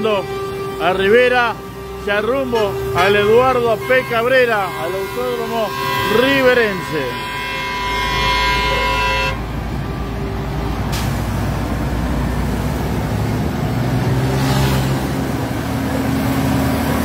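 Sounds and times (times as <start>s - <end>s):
deep truck engine hum: 0.0s - 17.0s
truck diesel engines: 0.0s - 17.0s.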